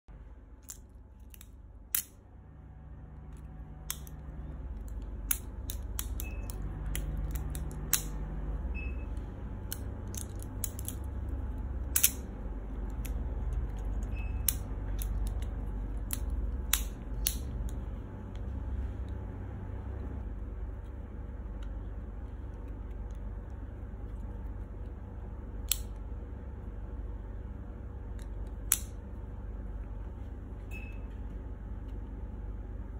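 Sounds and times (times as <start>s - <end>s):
low steady hum: 0.0s - 32.9s.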